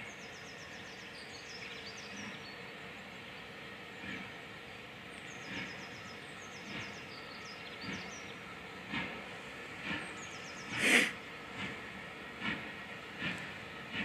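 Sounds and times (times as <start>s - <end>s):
steam locomotive exhaust beats: 0.0s - 14.0s.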